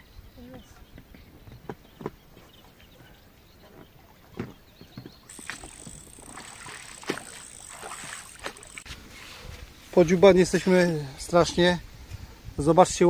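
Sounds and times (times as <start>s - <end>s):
oars splashing in water: 4.5s - 9.4s.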